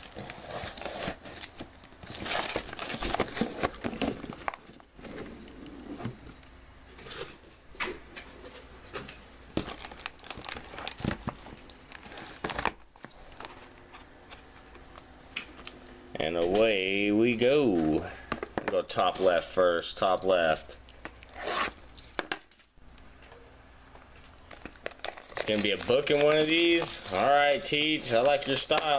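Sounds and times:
plastic shrink-wrap crinkling: 0:00.0 - 0:05.0, 0:09.6 - 0:14.8, 0:24.1 - 0:28.9
cardboard rustling: 0:00.0 - 0:06.4, 0:24.5 - 0:28.9.

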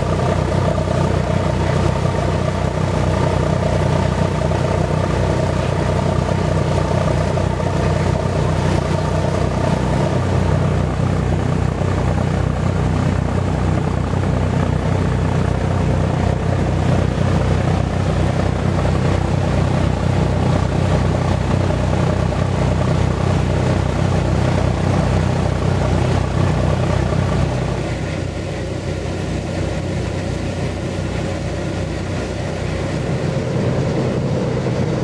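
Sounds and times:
boat engine humming: 0:00.0 - 0:35.0
water rushing: 0:00.0 - 0:35.0.

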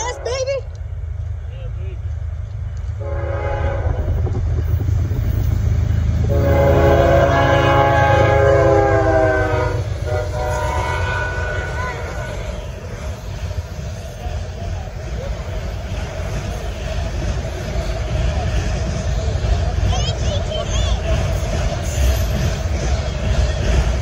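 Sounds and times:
train passing: 0:00.0 - 0:24.0
locomotive air horn blasts: 0:03.0 - 0:04.0, 0:06.2 - 0:11.8.

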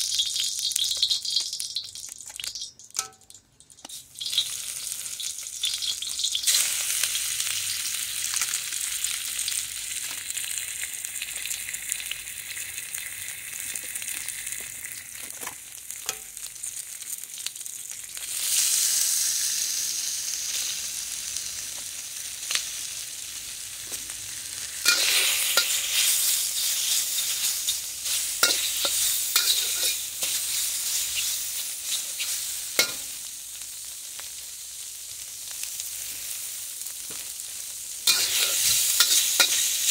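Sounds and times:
hot oil sizzling in a wok: 0:00.0 - 0:39.9
metal spatula scraping a wok: 0:24.8 - 0:33.1, 0:38.0 - 0:39.9.

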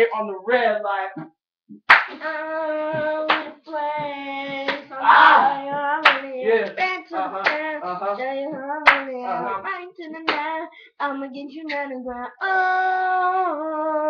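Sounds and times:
sharp hand smacks: 0:01.9 - 0:02.4
boy singing held notes: 0:02.2 - 0:13.9.

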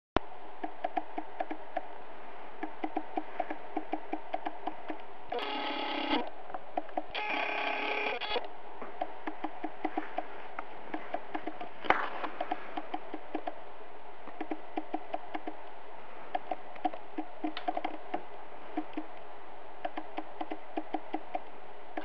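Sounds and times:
clicking beat: 0:00.6 - 0:01.9, 0:02.6 - 0:05.1, 0:09.0 - 0:10.3, 0:10.9 - 0:11.7, 0:12.3 - 0:13.6, 0:14.3 - 0:15.7, 0:16.3 - 0:19.2, 0:19.8 - 0:22.0.

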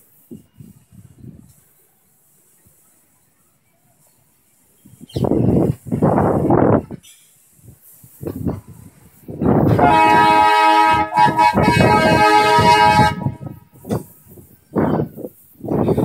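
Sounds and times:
vehicle horn chord: 0:09.7 - 0:13.6.

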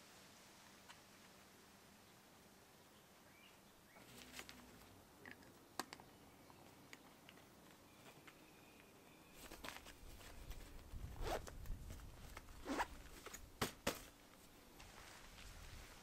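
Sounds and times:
fabric rustling: 0:09.3 - 0:16.0
tent zipper being pulled: 0:11.0 - 0:11.6, 0:12.6 - 0:13.0.

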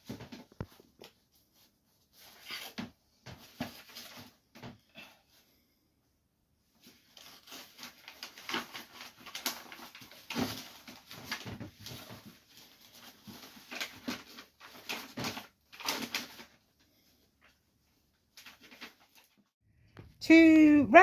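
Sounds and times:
backing paper peeling and crackling: 0:06.8 - 0:17.1.

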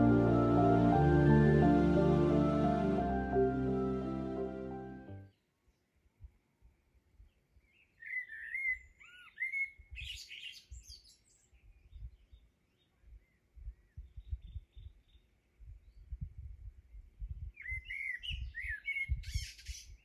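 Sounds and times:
low rumbling noise: 0:00.0 - 0:05.2
songbird singing: 0:07.2 - 0:16.2, 0:17.4 - 0:20.0
bird chirps: 0:07.7 - 0:15.2.

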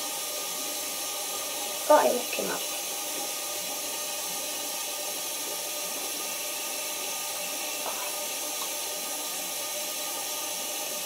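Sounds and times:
tap running into sink: 0:07.7 - 0:09.0.

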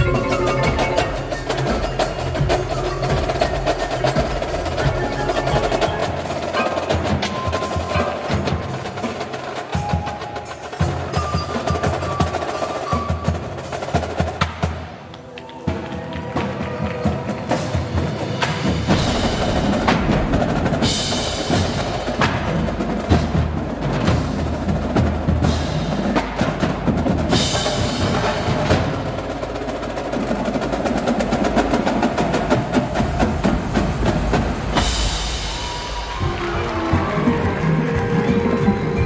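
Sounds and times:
keyboard mallet instruments: 0:00.0 - 0:08.8, 0:36.4 - 0:39.0
drumline playing fast rhythms: 0:00.0 - 0:39.0.

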